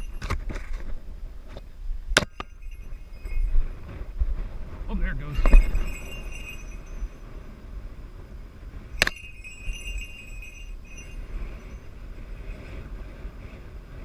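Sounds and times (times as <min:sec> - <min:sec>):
bell jingling: 0:00.0 - 0:00.8, 0:02.2 - 0:04.1, 0:05.0 - 0:07.6, 0:08.9 - 0:12.8
wind rumble on microphone: 0:00.0 - 0:14.0.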